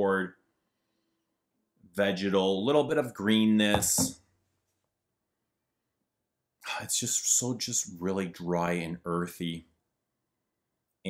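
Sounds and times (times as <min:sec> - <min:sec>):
man speaking: 0:00.0 - 0:00.3, 0:02.0 - 0:04.1, 0:06.7 - 0:09.6.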